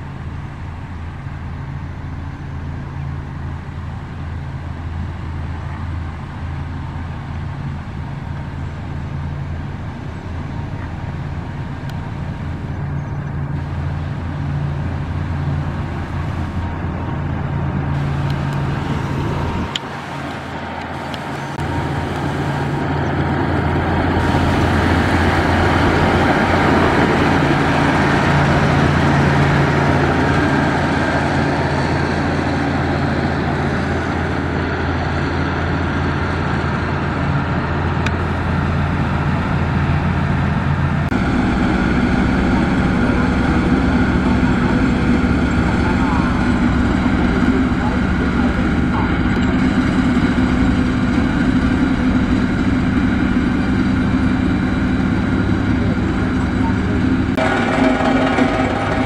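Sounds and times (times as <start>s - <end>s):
diesel engines droning: 0.0s - 59.0s
gravel hissing: 17.8s - 31.2s.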